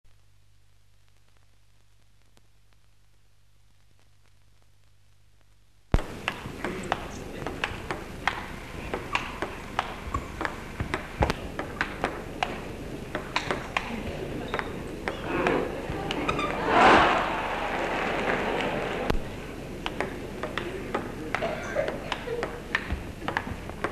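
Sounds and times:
table tennis balls clicking: 0:06.0 - 0:16.6, 0:19.1 - 0:23.9
low background murmur: 0:06.0 - 0:23.9.

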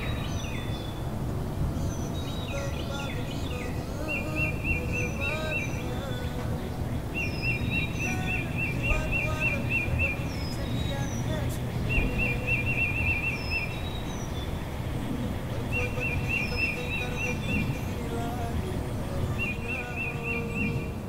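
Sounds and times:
birds chirping: 0:00.0 - 0:21.0
low background rumble: 0:00.0 - 0:21.0.

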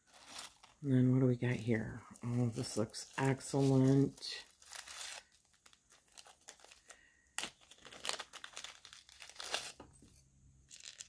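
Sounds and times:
paper packaging crinkling: 0:00.0 - 0:00.8, 0:01.4 - 0:11.0.

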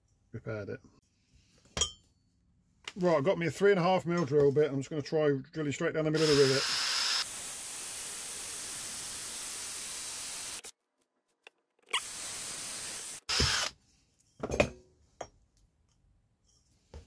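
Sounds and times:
cordless drill whirring: 0:06.2 - 0:07.3, 0:13.0 - 0:13.8.

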